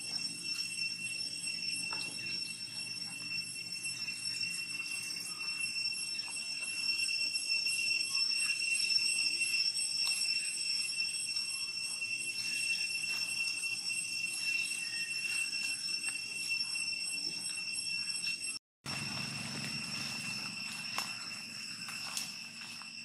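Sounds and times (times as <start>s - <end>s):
insects droning: 0.0s - 23.0s
rustling dry leaves: 11.8s - 16.8s, 18.9s - 23.0s.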